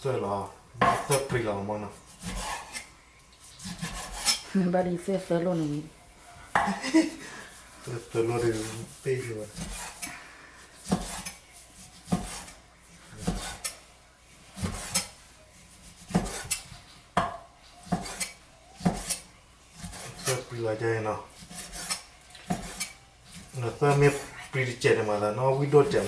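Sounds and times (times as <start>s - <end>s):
knife slicing meat on wooden board: 2.0s - 2.9s, 3.6s - 4.4s, 9.5s - 10.1s, 10.8s - 12.6s, 13.2s - 13.8s, 14.6s - 15.2s, 15.8s - 16.7s, 17.8s - 20.5s, 21.4s - 24.3s.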